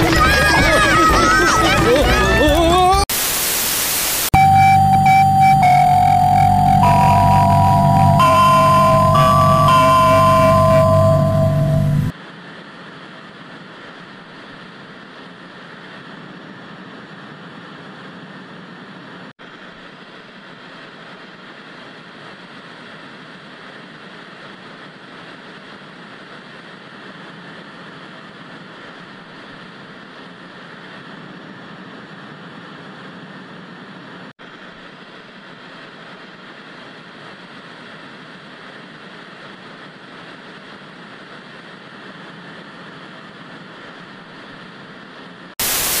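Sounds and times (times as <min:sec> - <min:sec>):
loud tv static: 0:00.0 - 0:04.4, 0:45.6 - 0:46.0.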